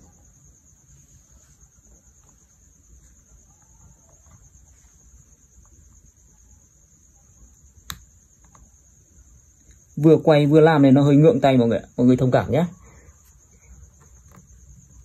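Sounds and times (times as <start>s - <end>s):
sharp click: 7.8s - 8.6s.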